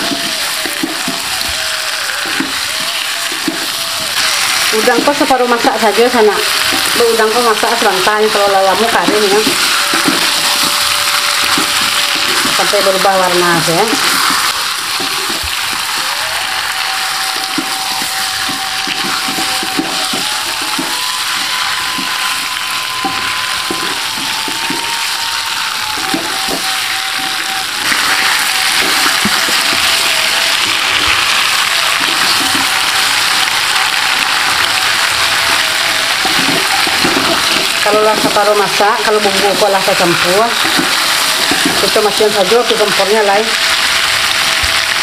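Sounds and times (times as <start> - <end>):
spatula scraping pan: 0.0 - 16.0
prawns sizzling in wok: 0.0 - 45.0.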